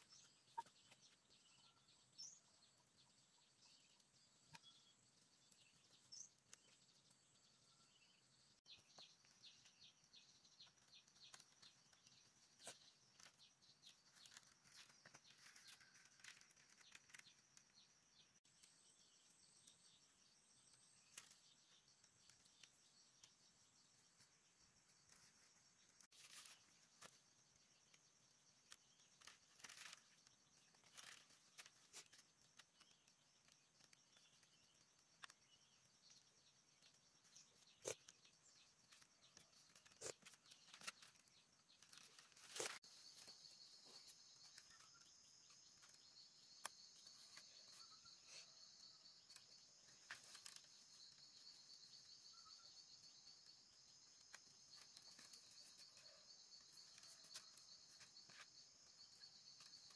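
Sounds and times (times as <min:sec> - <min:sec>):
insects chirring: 0:08.6 - 0:59.9
bamboo tearing and crackling: 0:10.7 - 0:17.7, 0:28.6 - 0:35.4, 0:37.8 - 0:47.8, 0:49.2 - 0:52.0, 0:53.1 - 0:58.8.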